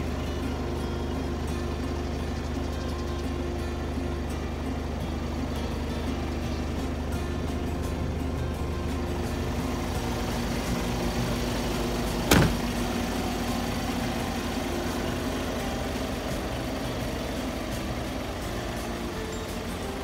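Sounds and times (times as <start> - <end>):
diesel truck engine idling: 0.0 - 20.0
cab door slamming: 11.4 - 13.0.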